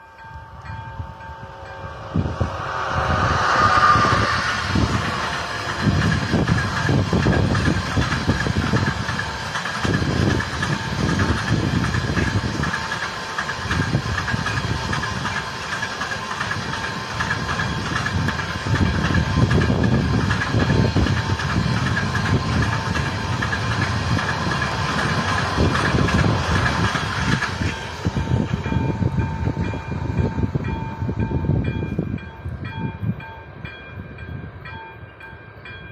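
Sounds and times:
steady high tone: 0:00.0 - 0:09.7
train wheels rumbling on rails: 0:00.0 - 0:35.9.

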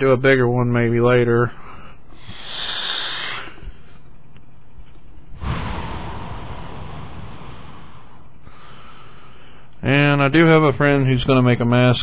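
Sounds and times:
breath blown into microphone: 0:02.2 - 0:03.7, 0:05.3 - 0:09.2.

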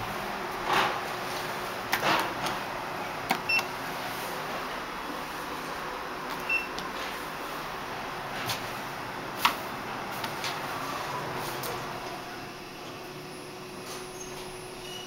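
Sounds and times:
elevator background noise: 0:00.0 - 0:15.0
elevator button beeps: 0:03.4 - 0:03.7, 0:06.4 - 0:06.8.

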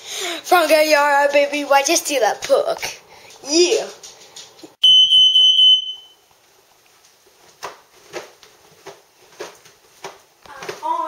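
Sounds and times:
smoke alarm beep: 0:04.8 - 0:06.2.

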